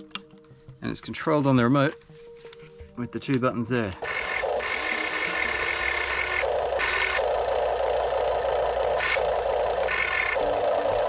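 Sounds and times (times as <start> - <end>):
electric actuators whirring: 4.0 - 11.0.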